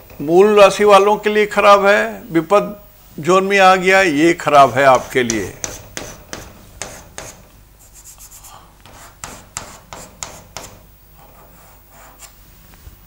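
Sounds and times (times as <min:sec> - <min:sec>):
chalk scratching on blackboard: 0:04.6 - 0:12.4.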